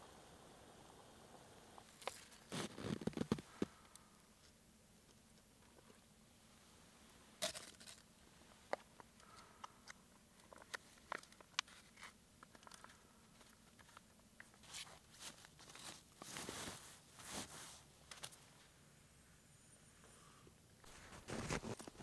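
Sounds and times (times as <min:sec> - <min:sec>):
rustle: 0:10.4 - 0:18.8
gear crunching in snow: 0:20.9 - 0:22.0.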